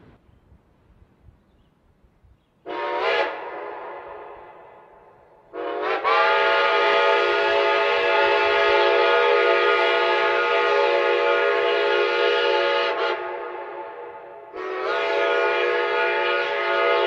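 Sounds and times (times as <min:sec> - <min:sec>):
steam locomotive chime whistle: 0:02.7 - 0:04.6, 0:05.5 - 0:17.0.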